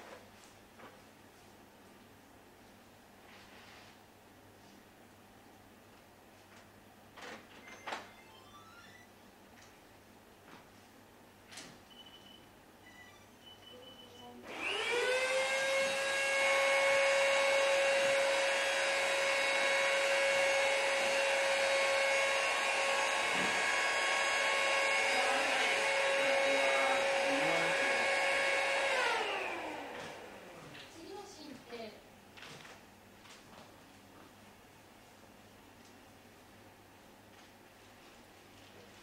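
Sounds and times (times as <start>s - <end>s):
handheld vacuum cleaner whine: 14.5s - 30.6s.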